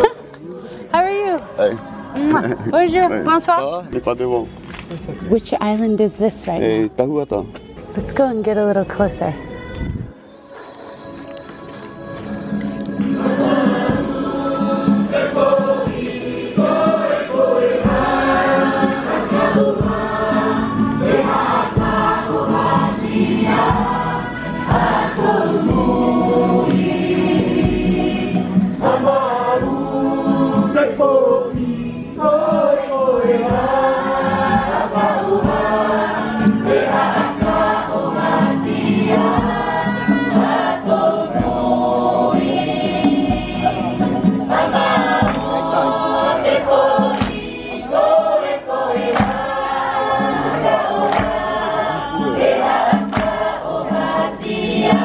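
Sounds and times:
choir singing: 0:00.0 - 0:03.6, 0:07.1 - 0:55.0
steady beat: 0:31.5 - 0:55.0.

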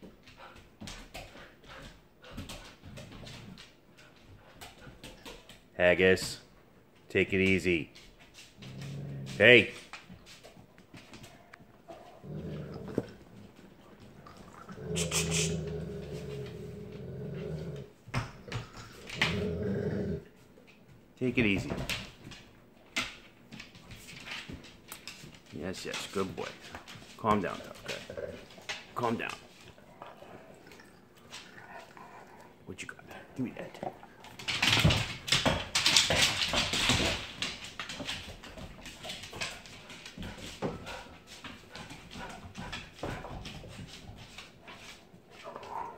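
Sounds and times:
dog growling low: 0:08.6 - 0:09.5, 0:11.9 - 0:13.4, 0:14.1 - 0:20.4, 0:27.4 - 0:34.4
dog claws clattering on hard floor: 0:21.4 - 0:30.2, 0:33.7 - 0:45.9.

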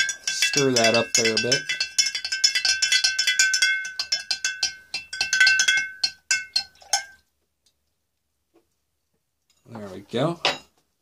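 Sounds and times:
spoon clinking in glass jar: 0:00.0 - 0:07.2.

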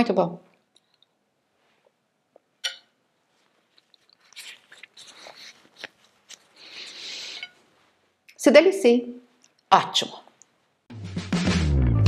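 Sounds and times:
soft chewing: 0:03.3 - 0:07.7
metal spoon scraping ceramic dish: 0:07.2 - 0:07.6.

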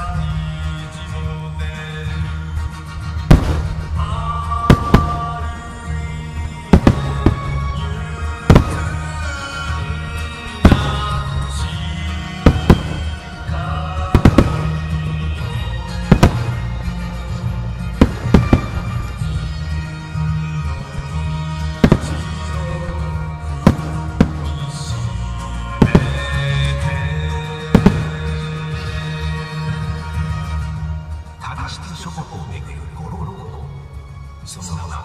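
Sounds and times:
music playing: 0:00.0 - 0:35.0
firework shells bursting: 0:03.2 - 0:05.7, 0:06.7 - 0:19.9, 0:21.6 - 0:28.9.

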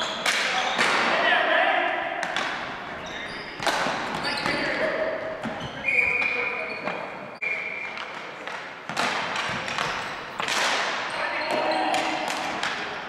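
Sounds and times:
high squeak: 0:03.0 - 0:03.6
sticks and ball clacking on hardwood: 0:08.0 - 0:13.0.

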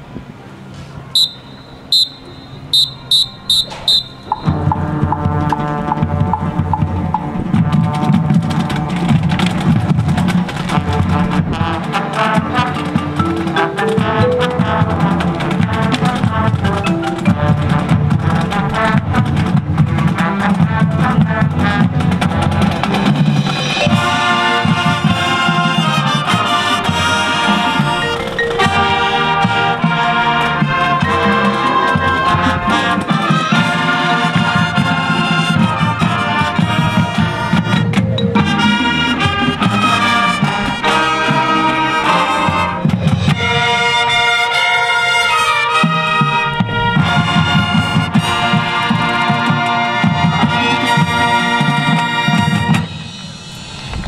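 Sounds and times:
marching band playing: 0:01.1 - 0:54.0
sharp whistle blasts: 0:01.2 - 0:04.8.

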